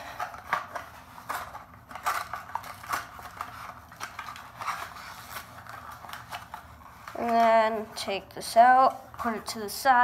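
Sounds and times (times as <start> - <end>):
plastic blister pack crinkling: 0.0 - 8.0.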